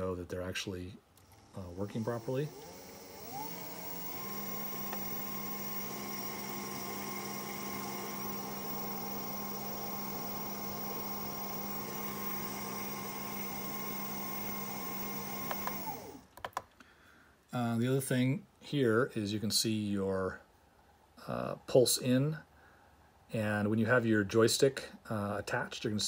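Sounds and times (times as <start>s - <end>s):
electric motor hum and whine: 1.7s - 16.2s.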